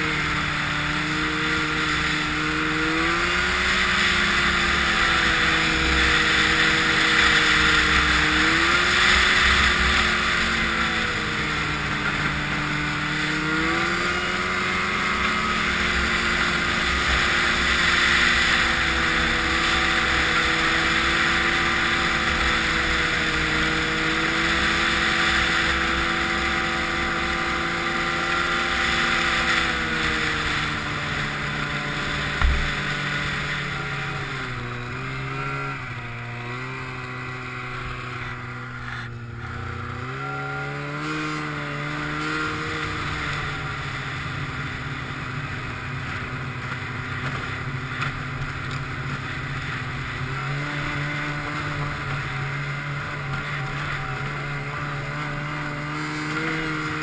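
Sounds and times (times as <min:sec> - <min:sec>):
snowmobile engine running: 0:00.0 - 0:57.0
sharp thump: 0:32.4 - 0:32.9.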